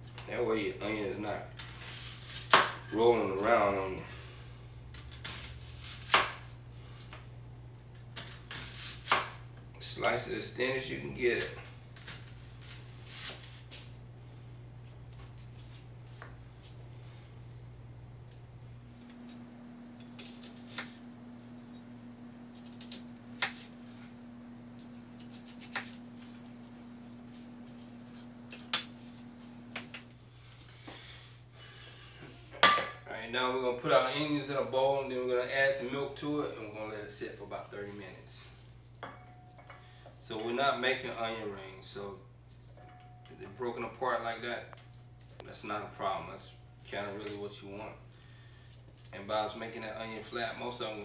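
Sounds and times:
faint steady hum: 0:00.0 - 0:51.0
knife slicing onion on cutting board: 0:04.9 - 0:06.5, 0:08.1 - 0:09.4.

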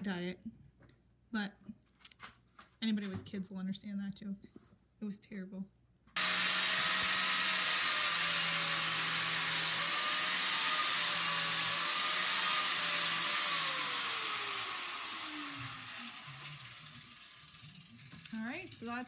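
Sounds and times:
rotary cutting tool whining: 0:06.2 - 0:19.0.

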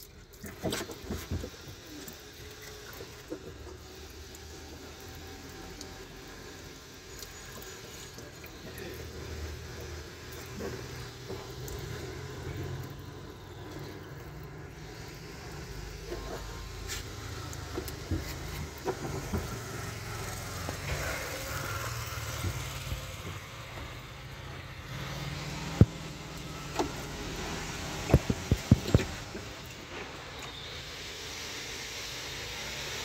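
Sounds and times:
plastic hoses clicking and knocking: 0:17.4 - 0:19.9, 0:27.9 - 0:29.8.

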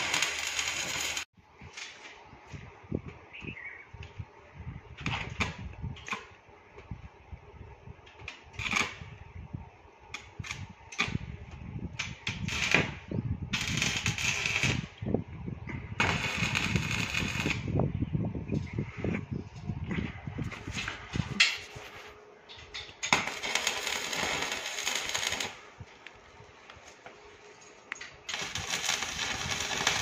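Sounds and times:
arc welding crackling: 0:00.0 - 0:02.1, 0:08.1 - 0:09.1, 0:10.1 - 0:15.1, 0:16.0 - 0:17.8, 0:22.7 - 0:30.0.

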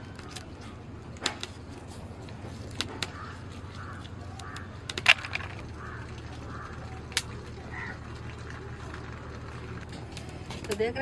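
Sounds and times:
sharp cracks and snaps: 0:02.6 - 0:03.3.

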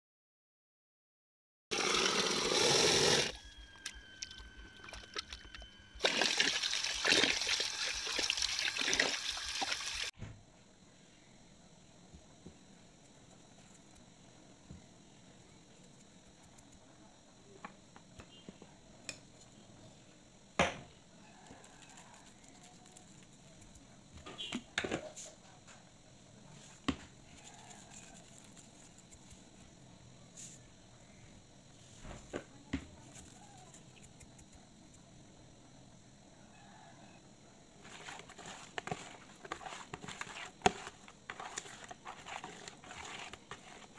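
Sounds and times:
water pouring into plastic basin: 0:01.7 - 0:03.3, 0:04.8 - 0:10.1
faint steady background noise: 0:10.1 - 0:43.9.

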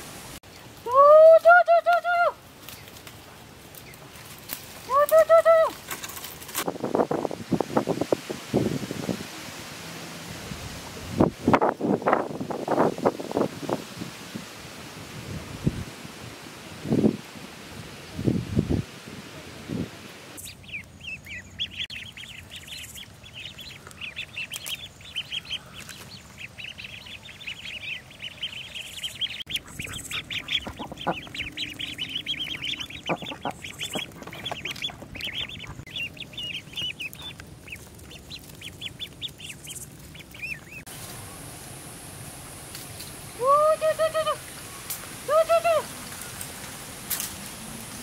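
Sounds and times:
ducklings peeping: 0:20.3 - 0:41.5.

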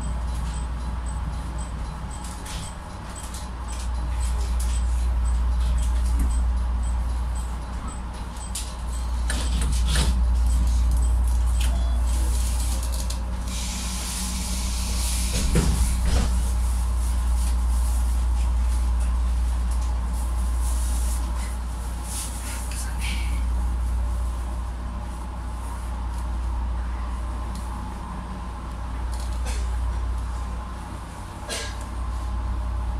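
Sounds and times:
train equipment humming: 0:00.0 - 0:32.9
air hissing: 0:13.5 - 0:15.9.

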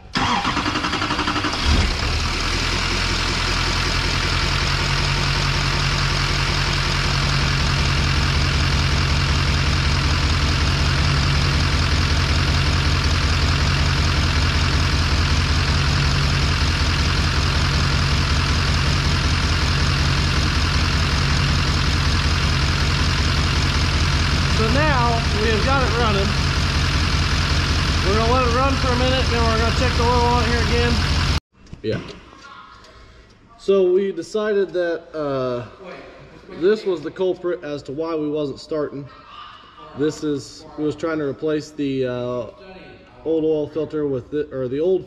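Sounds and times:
diesel engine starting and idling: 0:00.0 - 0:31.4.

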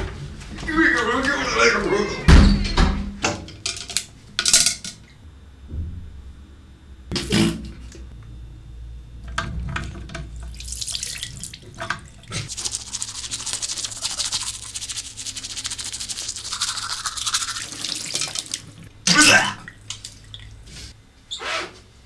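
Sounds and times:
toothbrush scrubbing teeth: 0:12.3 - 0:18.9.

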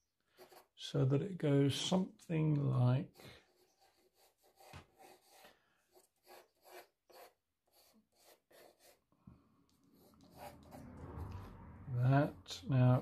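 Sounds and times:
pencil scratching on paper: 0:00.0 - 0:00.8, 0:03.0 - 0:09.1, 0:09.7 - 0:11.5.

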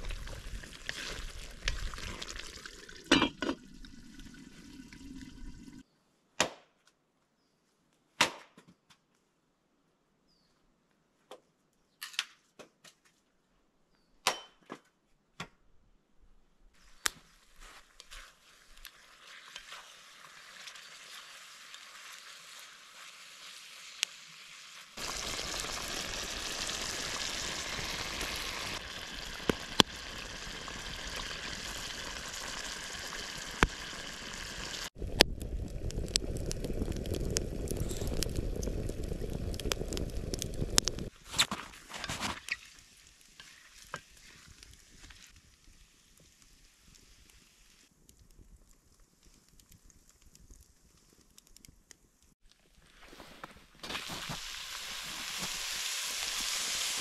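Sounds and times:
food sizzling: 0:00.0 - 0:05.8, 0:17.7 - 0:47.9, 0:52.8 - 0:57.0.

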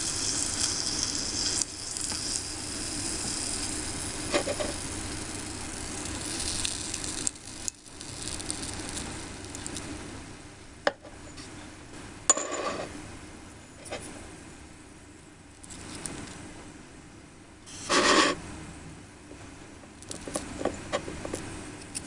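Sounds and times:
hot oil sizzling: 0:00.0 - 0:10.2.

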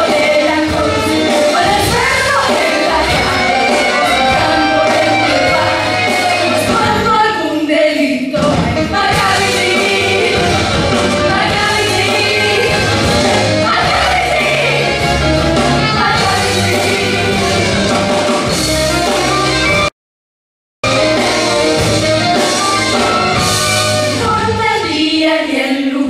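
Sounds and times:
people singing: 0:00.0 - 0:17.9, 0:23.1 - 0:26.0
upbeat band accompaniment: 0:00.0 - 0:19.9, 0:20.8 - 0:25.6.

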